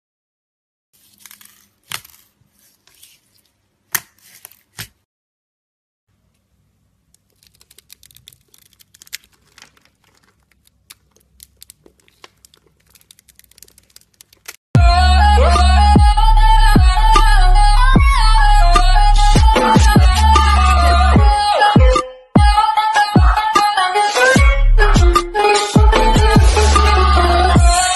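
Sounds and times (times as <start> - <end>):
slime with beads crackling: 7.2 - 14.6.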